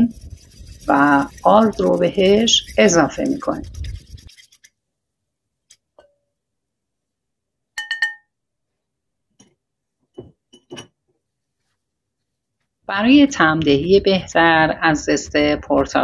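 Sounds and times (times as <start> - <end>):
fork clinking on ceramic bowls: 7.8 - 8.3.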